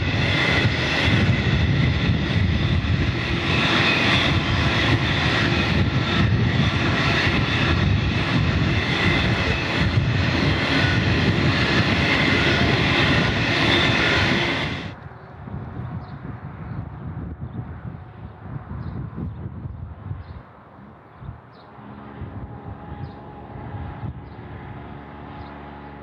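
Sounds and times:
train wheels roaring on track: 0.0 - 18.8, 20.5 - 26.0.

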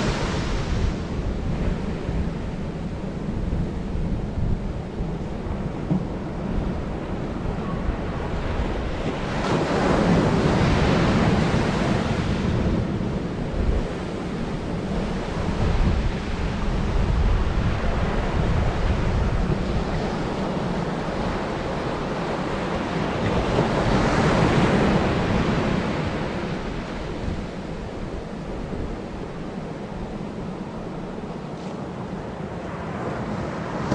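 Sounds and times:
surf washing up a sandy beach: 0.0 - 33.9
wind buffeting microphone: 0.0 - 33.9.

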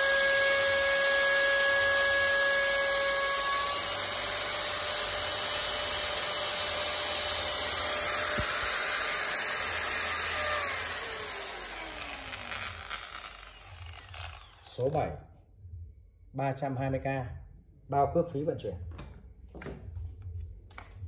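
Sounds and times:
angle grinder whirring: 0.0 - 14.9.

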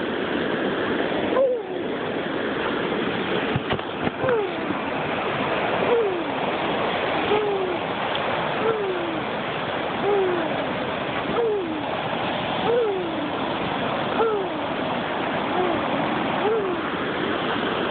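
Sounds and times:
steady rushing noise: 0.0 - 17.9
child making vocal sound effect: 4.2 - 4.8, 7.3 - 7.8, 8.6 - 9.3, 10.0 - 10.6, 11.3 - 11.9, 12.7 - 13.3, 14.2 - 14.7, 15.5 - 16.9.

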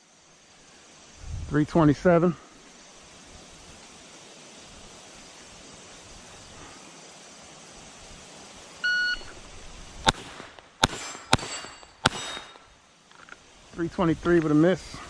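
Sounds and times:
shot timer beep: 8.8 - 9.3
pistol shots: 10.1 - 12.7.

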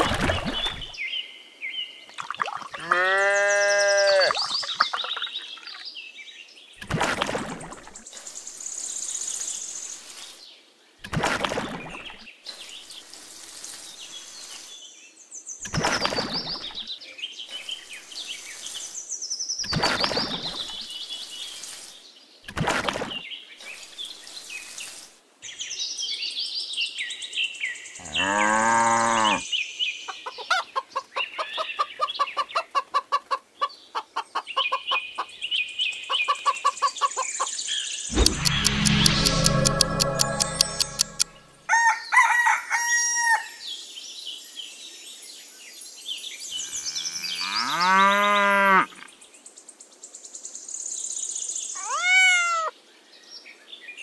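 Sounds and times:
bird chirps: 3.8 - 6.0, 36.8 - 41.7.

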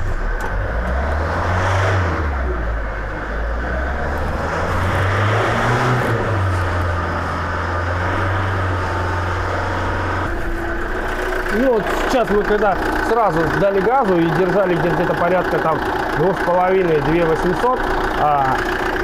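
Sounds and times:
diesel engine revving: 0.0 - 19.0
fuel injector knocking: 10.4 - 19.0.

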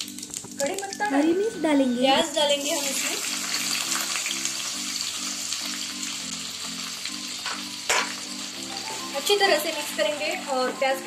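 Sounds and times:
onions sizzling in hot oil: 0.0 - 11.0.

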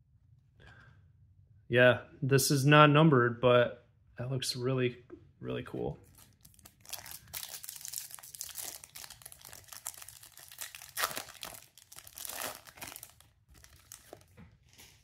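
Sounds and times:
foil wrapper crinkling and ripping: 6.0 - 15.0.

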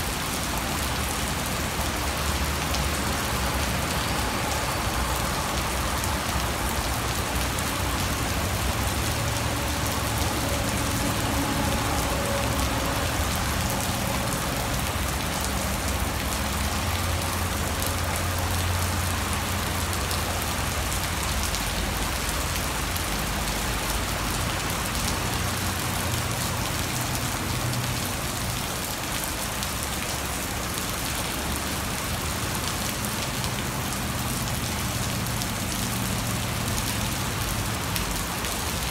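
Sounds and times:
heavy rain on paving: 0.0 - 38.9.

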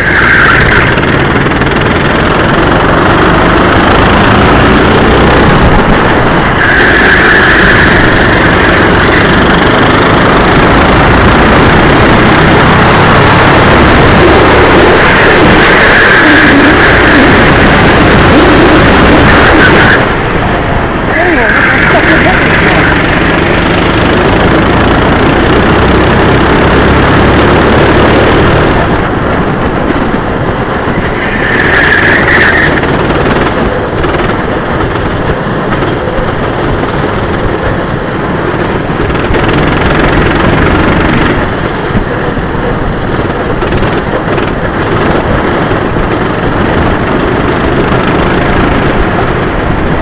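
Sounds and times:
kart engine running hard: 0.0 - 50.0
wind rushing: 0.0 - 50.0.

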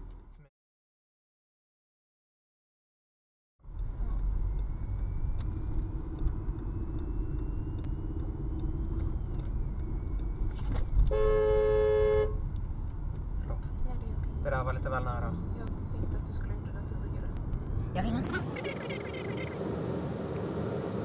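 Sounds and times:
car road and engine rumble: 0.0 - 0.5, 3.6 - 21.0
two-tone car horn: 11.1 - 12.4.

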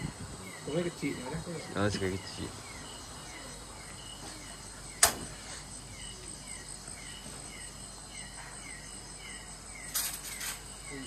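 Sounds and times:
insects chirping: 0.0 - 11.0
sharp click: 5.0 - 5.3.

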